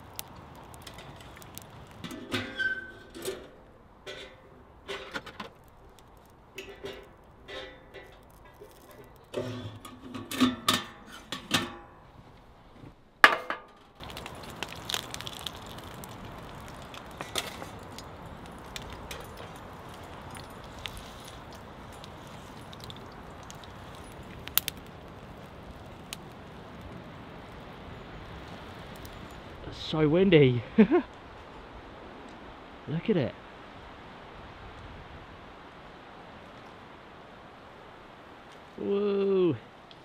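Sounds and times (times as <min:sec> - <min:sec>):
strong wind through trees: 0:00.0 - 0:05.0, 0:14.0 - 0:40.0.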